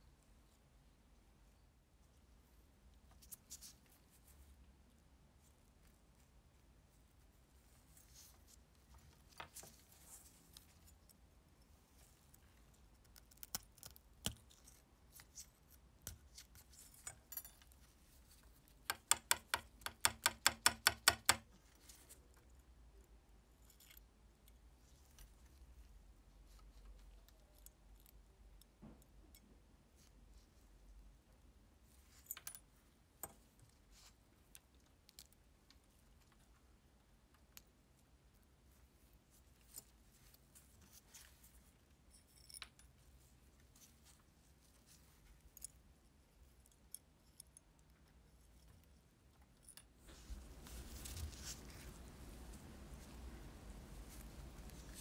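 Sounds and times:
soft rustling scrape: 0:05.4 - 0:11.0, 0:38.7 - 0:42.3, 0:50.0 - 0:55.0.

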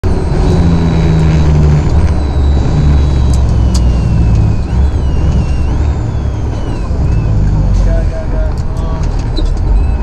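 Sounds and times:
truck engine drone: 0:00.0 - 0:10.0
high whine falling in pitch: 0:00.1 - 0:08.2
sharp ticks: 0:01.8 - 0:07.3.

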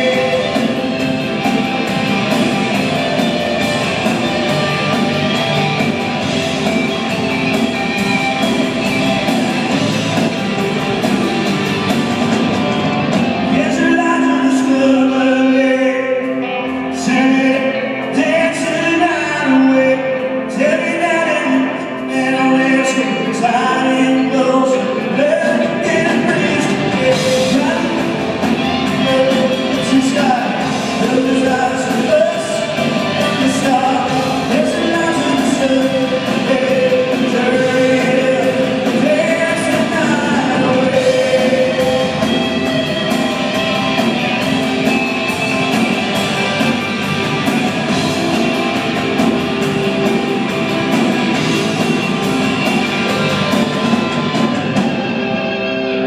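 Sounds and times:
live rock band with singer: 0:00.0 - 0:56.0.

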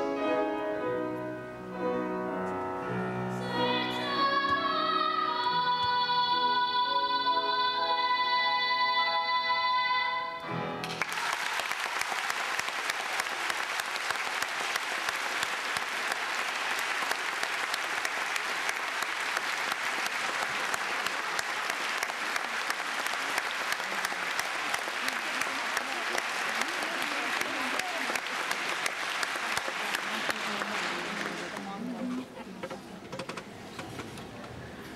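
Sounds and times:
piano: 0:00.0 - 0:11.2
boy singing: 0:03.4 - 0:10.4
audience applauding: 0:10.8 - 0:32.3.

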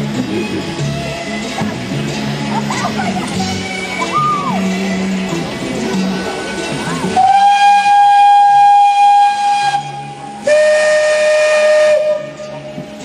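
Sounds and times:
steam locomotive whistle: 0:07.1 - 0:12.8.

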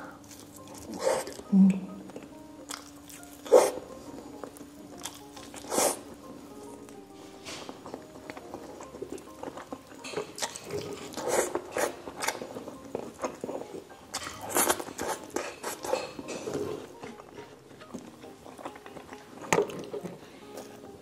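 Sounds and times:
wet chewing and lip smacks: 0:17.0 - 0:20.7.

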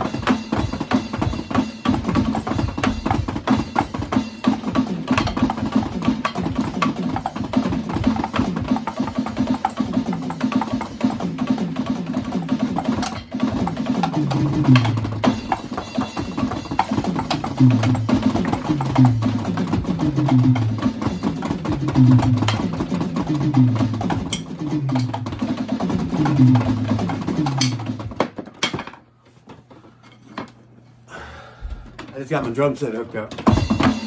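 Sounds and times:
electronic drum beat: 0:00.0 - 0:28.5, 0:31.7 - 0:34.0.

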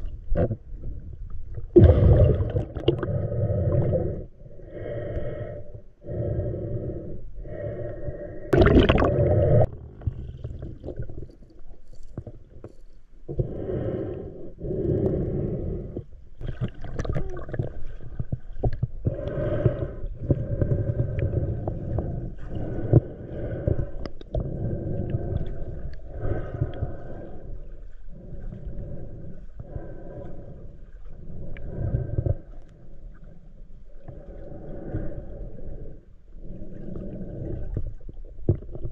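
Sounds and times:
pulsing underwater rumble: 0:00.0 - 0:38.9
underwater rushing burst: 0:01.7 - 0:03.9, 0:08.6 - 0:09.7.

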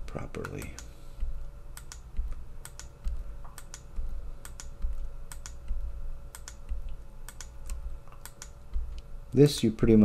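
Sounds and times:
faint steady hum: 0:00.0 - 0:10.0
mouse and keyboard clicks: 0:01.8 - 0:09.0.

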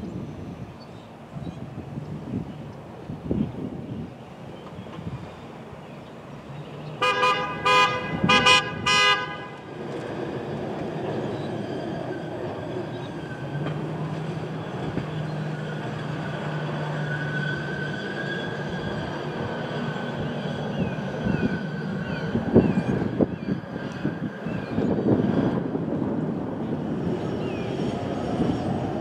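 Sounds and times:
rumble of passing vehicles: 0:00.0 - 0:29.0
horn short toots: 0:07.0 - 0:09.5.

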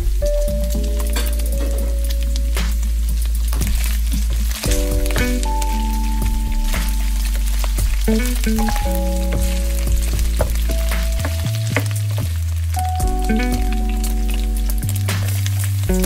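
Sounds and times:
ambient music with low bass: 0:00.0 - 0:16.0
fat popping: 0:06.7 - 0:12.5
wooden spatula stirring: 0:07.3 - 0:12.6.

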